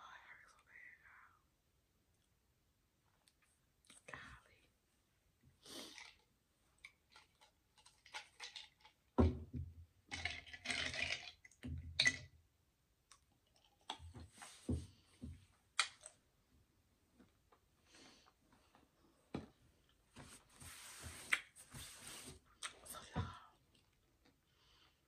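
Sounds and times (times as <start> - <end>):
ice cubes rattling in glass: 10.1 - 11.4.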